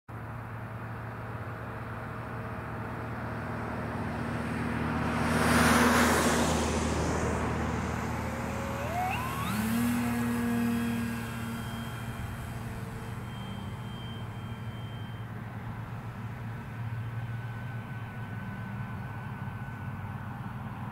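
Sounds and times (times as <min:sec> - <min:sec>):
broad rushing noise: 0:04.4 - 0:14.4
model aircraft motor whining: 0:05.8 - 0:20.8
steady low hum: 0:06.5 - 0:20.4.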